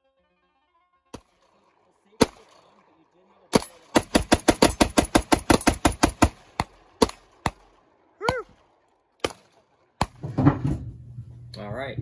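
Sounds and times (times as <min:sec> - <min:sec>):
rifle shots: 0:01.1 - 0:10.2
person whooping: 0:08.2 - 0:08.5.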